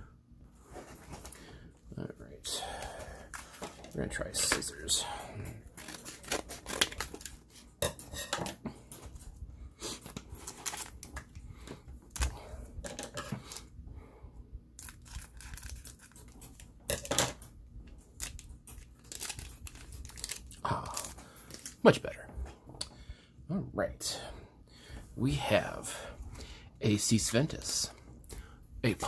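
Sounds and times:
foil wrapper crackling: 5.7s - 7.6s, 10.3s - 11.4s, 14.8s - 16.7s, 18.1s - 21.8s.

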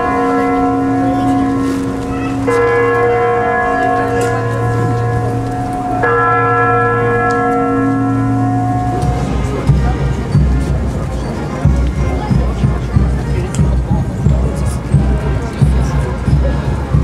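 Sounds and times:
large bell tolling: 0.0s - 13.1s.

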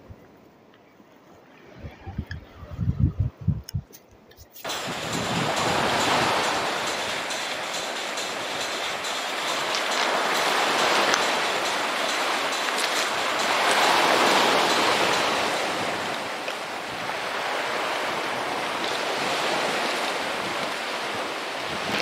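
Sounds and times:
waves washing onto pebbles: 4.6s - 22.0s.

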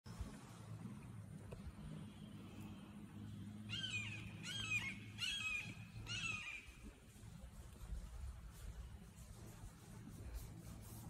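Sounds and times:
hawk calling: 3.6s - 6.8s.

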